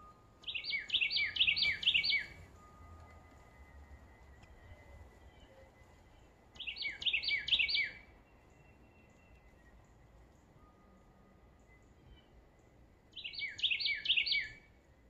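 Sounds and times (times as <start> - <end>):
songbird singing: 0.0 - 15.0.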